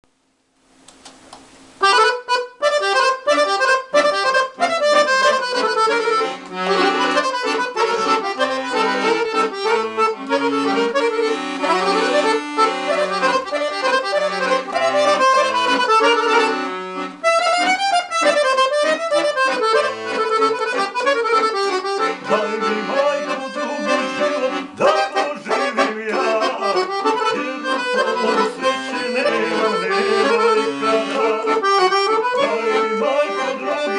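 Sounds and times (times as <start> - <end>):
folk band with accordion: 1.8 - 33.9.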